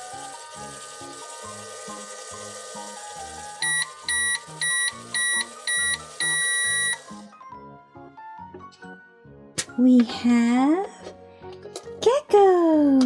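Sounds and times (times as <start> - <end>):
toy microwave beeping: 0.0 - 7.3
background music: 0.0 - 13.0.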